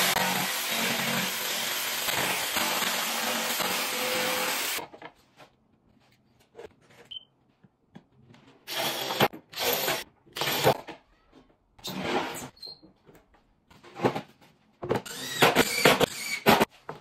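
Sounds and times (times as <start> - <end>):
power tool cutting wood: 0.0 - 4.8, 15.1 - 16.7
cordless drill driving screws: 8.7 - 10.8, 15.0 - 16.6.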